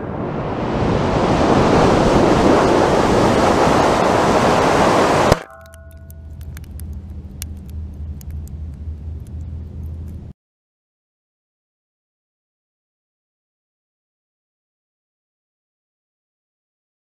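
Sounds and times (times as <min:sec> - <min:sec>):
low hum: 0:00.0 - 0:10.4
sharp impact with ring: 0:05.3 - 0:06.3.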